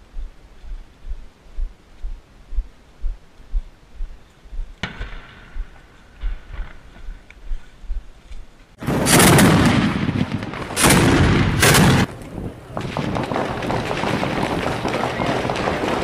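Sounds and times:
scattered cracks: 8.3 - 16.0
heavy gunfire: 8.8 - 12.1, 12.8 - 16.0
sharp blasts: 8.8 - 12.2.

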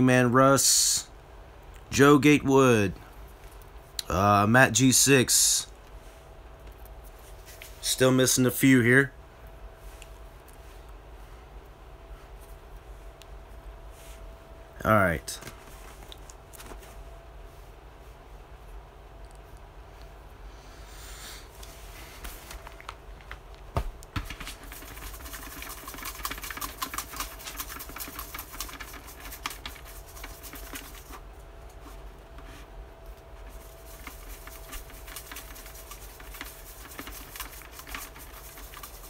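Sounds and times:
paper slips rattling in plastic bucket: 24.1 - 31.2, 33.4 - 39.0.

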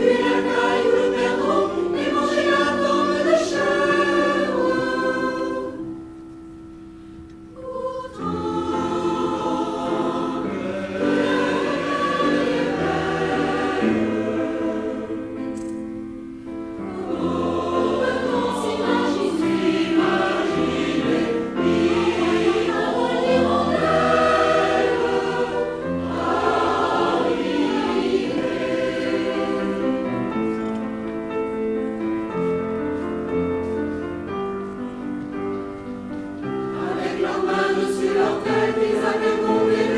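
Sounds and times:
mixed choir singing in harmony: 0.0 - 6.1, 7.5 - 15.7, 16.5 - 33.7, 36.4 - 39.9.

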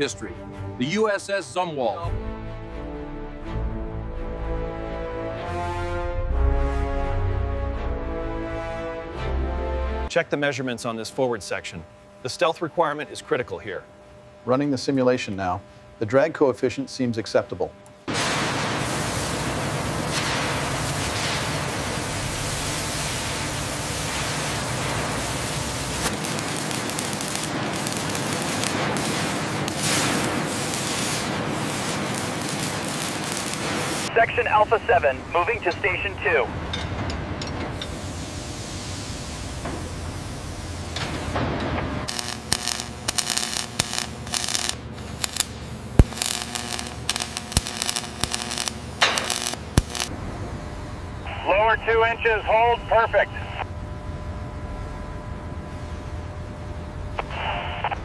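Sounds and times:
plasma cutting hiss and crackle: 18.1 - 34.1, 42.1 - 50.1
robotic arc welding: 18.2 - 34.1, 42.1 - 50.1
spatter snaps: 42.1 - 50.1.

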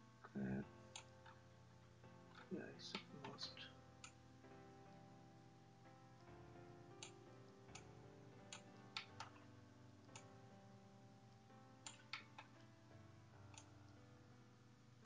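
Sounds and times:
faint background music: 0.0 - 15.0
computer mouse clicks: 11.8 - 12.6.

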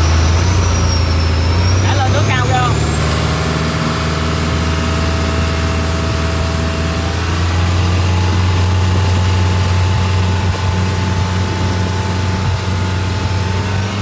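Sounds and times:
diesel boat engine drone: 0.0 - 14.0
thin high whine: 0.0 - 14.0.

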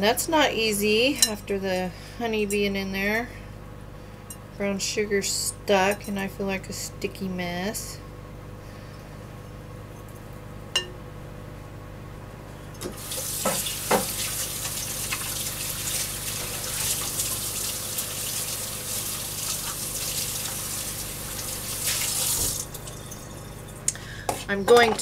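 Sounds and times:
kitchen tap running: 12.8 - 24.0.

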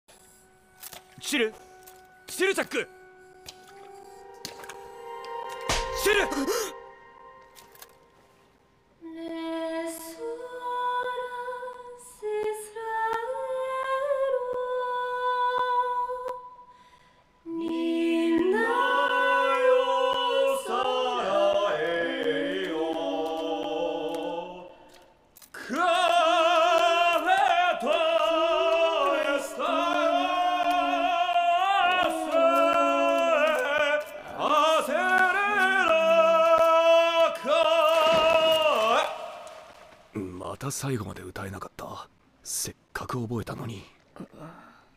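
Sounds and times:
woman singing long held notes: 17.4 - 24.7
man singing in harmony: 25.6 - 39.7.

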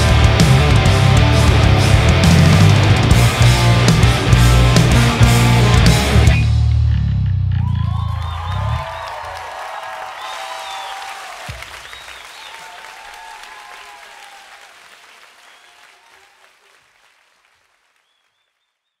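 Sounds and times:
audience cheering voices: 7.6 - 16.9
audience clapping: 7.6 - 18.9.

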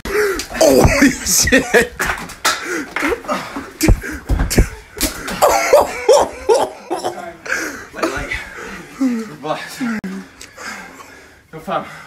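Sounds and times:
people grunting and exclaiming: 0.0 - 2.0, 2.6 - 10.2
thuds of blows: 0.4 - 3.1, 3.8 - 5.5.

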